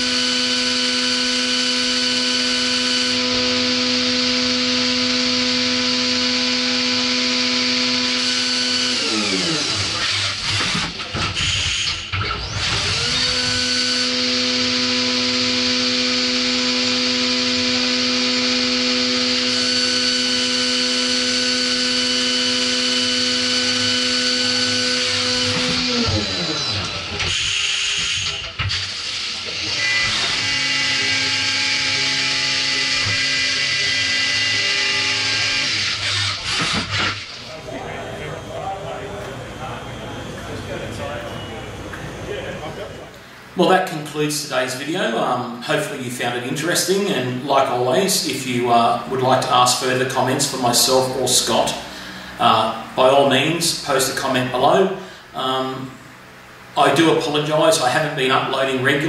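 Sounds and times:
machine spindle whine: 0.0s - 45.7s.

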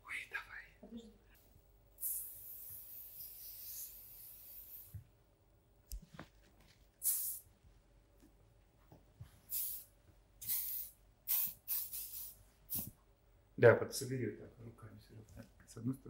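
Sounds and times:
hairspray hissing: 2.0s - 5.0s, 7.0s - 7.4s, 9.5s - 13.0s.

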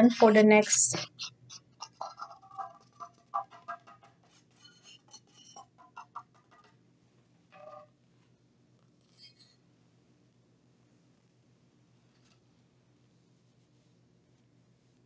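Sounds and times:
pad rubbing plastic: 1.8s - 6.7s.

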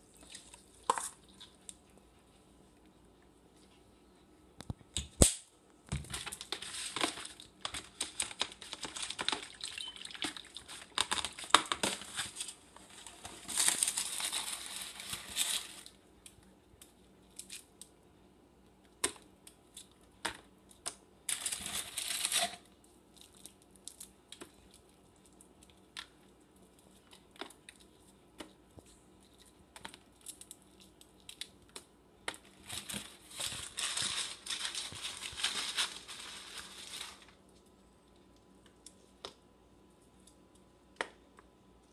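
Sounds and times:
plastic bag crinkling: 6.1s - 16.0s, 21.3s - 22.6s, 32.4s - 37.4s.

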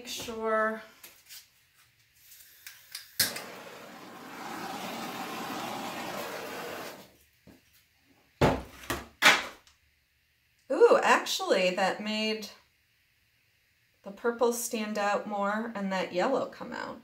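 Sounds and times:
torch hissing: 3.2s - 7.1s
thump: 8.4s - 9.4s.

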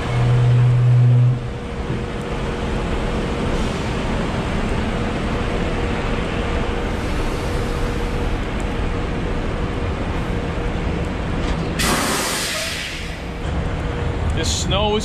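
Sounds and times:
diesel truck engine idling: 0.0s - 11.4s
loud air hiss: 11.8s - 13.3s.

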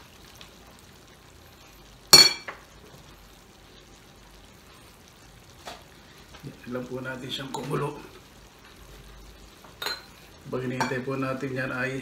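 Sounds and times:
faint sizzle of frying meat: 0.0s - 12.0s
metal utensil striking pot: 2.2s - 2.6s.

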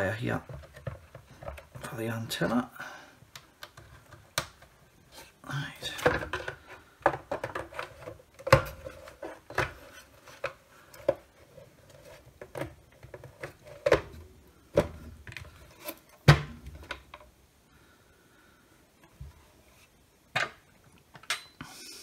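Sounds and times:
plastic rubbing and scraping: 0.2s - 2.2s, 3.6s - 17.1s
plastic case parts knocking and clicking: 0.4s - 2.0s, 5.9s - 11.3s, 12.4s - 15.6s.

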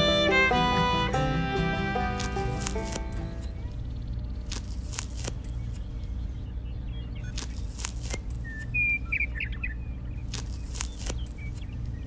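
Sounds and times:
birds chirping: 0.0s - 12.0s
steady low hum: 0.0s - 12.0s
wooden sticks clicking off: 2.1s - 3.4s.

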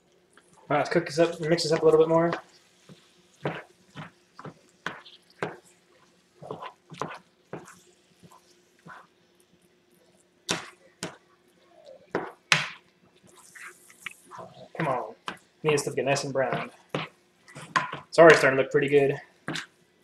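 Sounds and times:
spatula scraping a pot: 6.4s - 7.7s, 13.3s - 15.0s.

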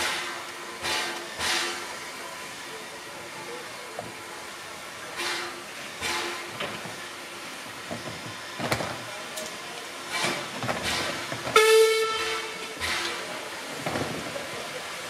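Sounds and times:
steam hissing: 0.0s - 15.0s
steam whistle blast: 11.6s - 13.1s.

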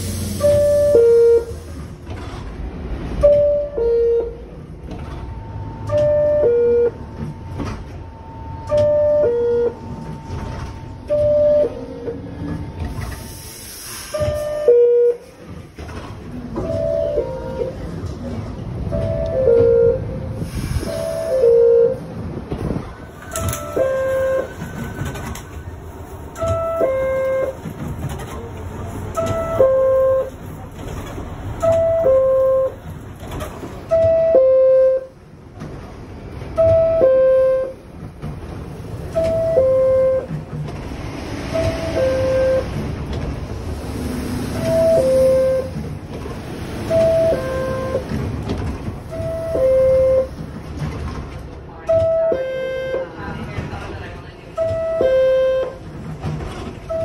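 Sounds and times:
train rumble: 0.0s - 57.0s.

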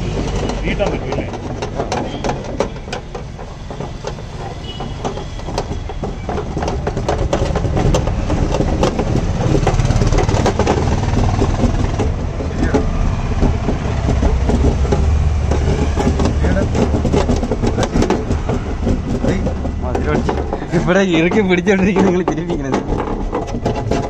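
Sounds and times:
tools clanking on steel door panel: 0.0s - 24.0s.

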